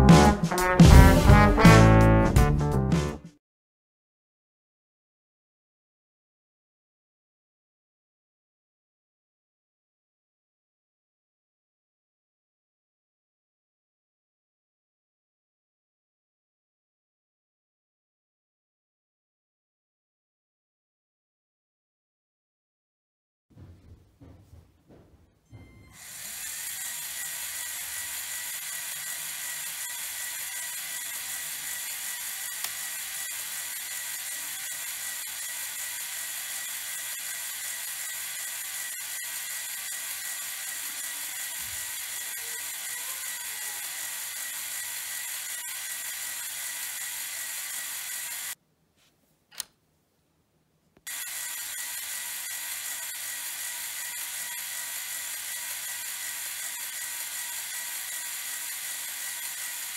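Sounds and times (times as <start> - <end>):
electric motor whirring gears: 25.8 - 48.6, 51.1 - 59.9
single click: 49.5 - 49.8.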